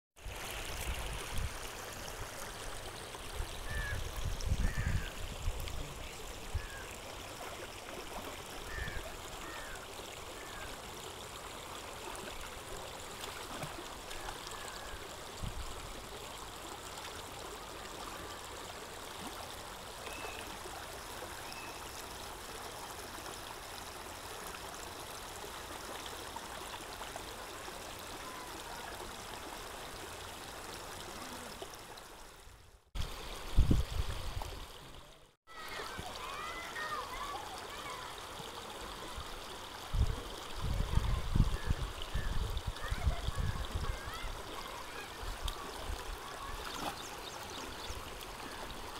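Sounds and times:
water rushing over stones: 0.2 - 32.2, 33.0 - 48.9.

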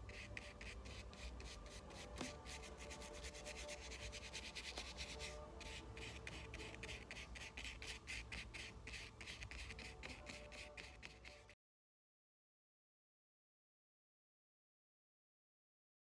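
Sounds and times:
brush scrubbing paint on canvas: 0.0 - 11.6.

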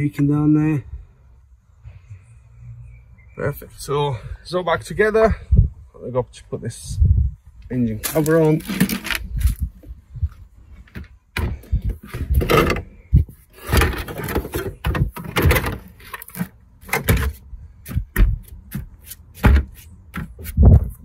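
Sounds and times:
plastic cover knocking and scraping: 8.1 - 9.6, 10.8 - 21.0.

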